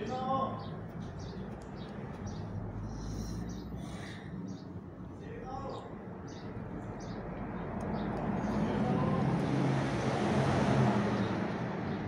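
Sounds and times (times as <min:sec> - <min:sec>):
vehicle passing by: 0:06.4 - 0:12.0.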